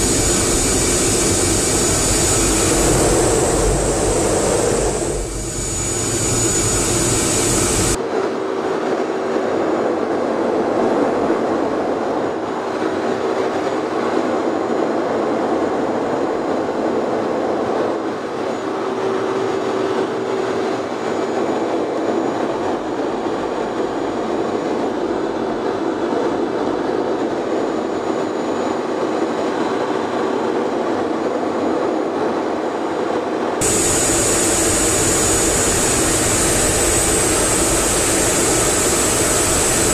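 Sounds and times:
jet engine and airflow rushing: 0:00.0 - 0:39.9.

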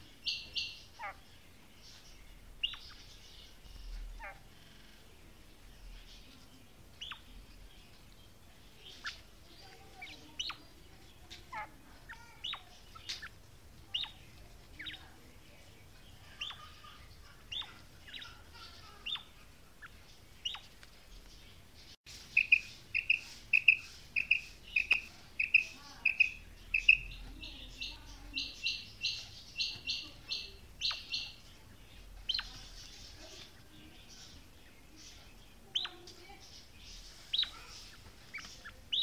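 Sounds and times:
quail calling: 0:22.4 - 0:31.4.

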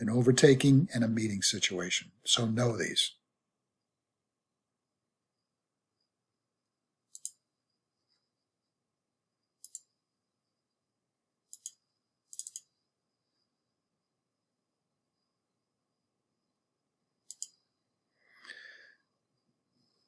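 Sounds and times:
computer mouse clicking: 0:07.1 - 0:07.5, 0:09.6 - 0:10.0, 0:11.4 - 0:12.8, 0:17.2 - 0:17.7.

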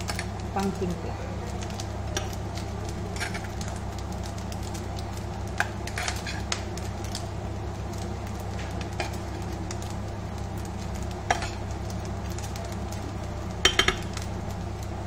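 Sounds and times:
steady low hum: 0:00.0 - 0:15.0
kitchenware clinking: 0:13.6 - 0:14.2.

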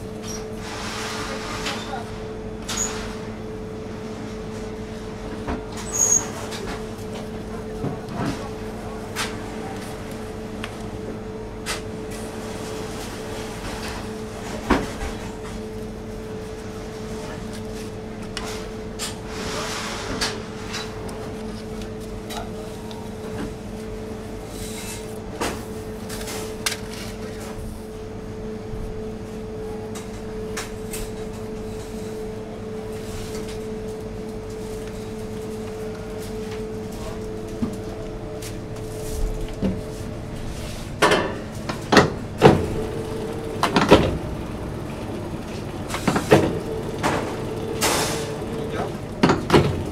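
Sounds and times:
steady hum: 0:30.3 - 0:49.9.

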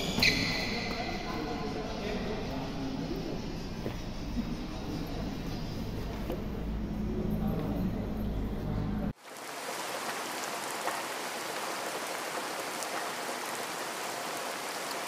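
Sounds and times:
steady hiss: 0:09.2 - 0:15.0.

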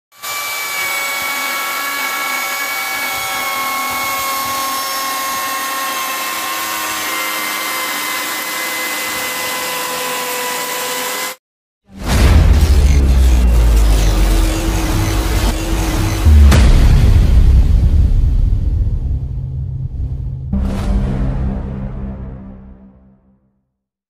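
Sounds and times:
angle grinder whining: 0:00.1 - 0:11.4, 0:12.5 - 0:16.6.

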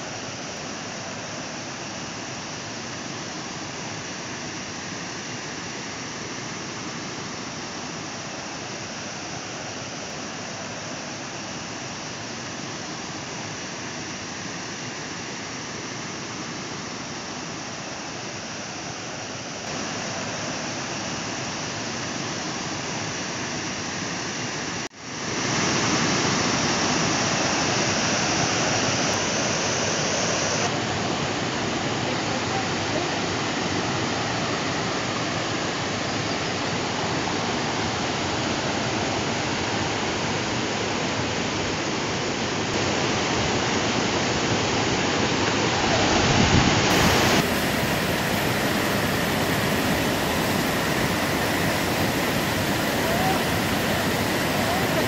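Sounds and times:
water rushing over rocks: 0:42.8 - 0:55.0.

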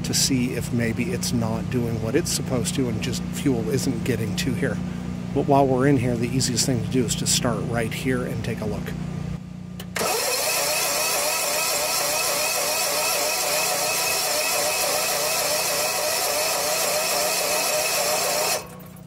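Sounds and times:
generator engine cranking: 0:09.8 - 0:19.0.

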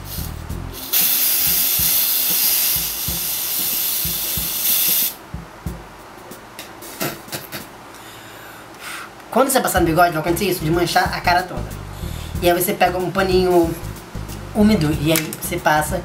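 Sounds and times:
aerosol spray hissing: 0:00.0 - 0:05.2.

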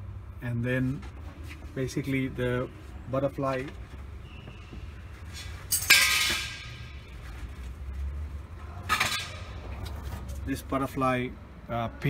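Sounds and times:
metal parts clinking: 0:05.7 - 0:07.0.

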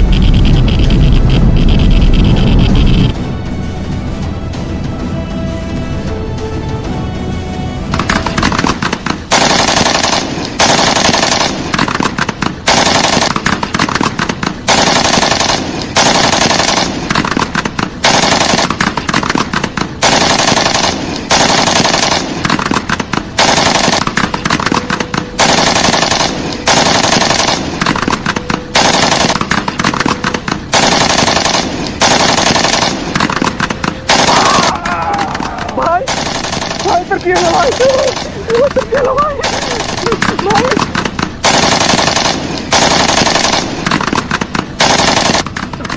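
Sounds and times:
automatic gunfire bursts: 0:08.0 - 0:34.7, 0:36.0 - 0:45.6.

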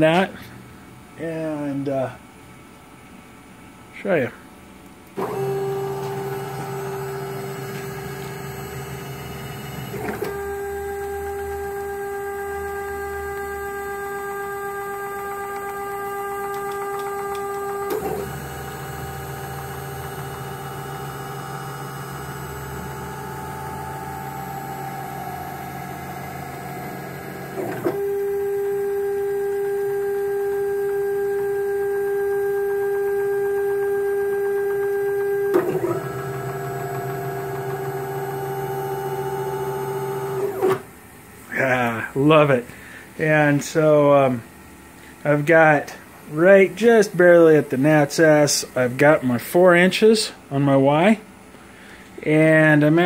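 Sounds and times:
stepper motors whining: 0:05.2 - 0:29.4.

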